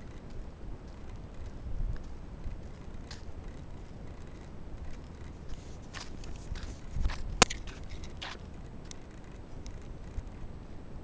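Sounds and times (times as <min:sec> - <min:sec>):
footsteps on paved path: 0:00.0 - 0:09.9
low rumble of wind: 0:00.0 - 0:11.0
microphone handling noise: 0:05.3 - 0:08.4.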